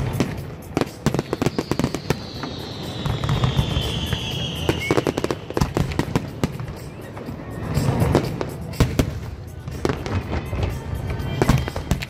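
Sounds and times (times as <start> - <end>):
fireworks bangs and crackling: 0.0 - 12.0
firework whistle falling in pitch: 1.0 - 6.2.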